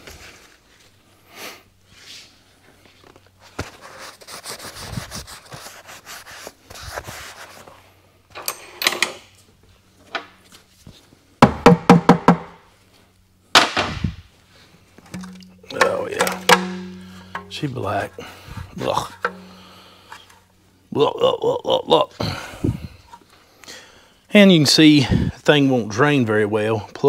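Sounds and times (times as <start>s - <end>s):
ringing metal knocks: 15.1s - 17.8s, 19.2s - 19.8s.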